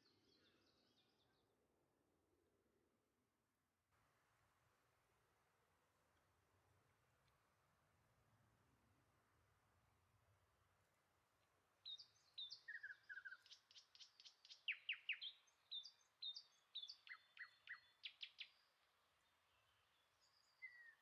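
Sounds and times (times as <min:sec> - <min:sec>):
songbird singing faintly: 0:00.0 - 0:01.6, 0:08.9 - 0:21.0.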